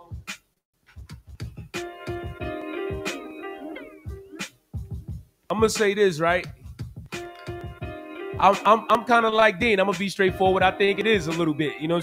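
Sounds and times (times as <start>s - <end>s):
kick drum beat: 1.0s - 3.1s, 4.1s - 8.7s, 9.6s - 11.4s
held synth chord: 2.0s - 4.4s, 7.2s - 9.1s.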